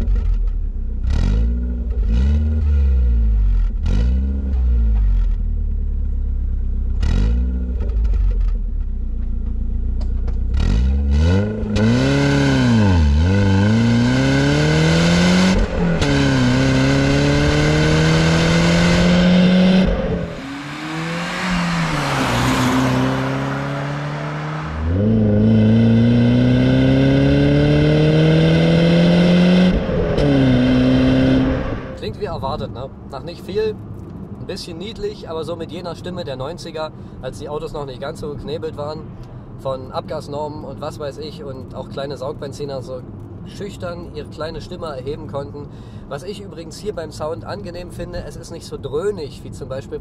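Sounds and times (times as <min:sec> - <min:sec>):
car engine accelerating through gears: 0:09.2 - 0:32.1.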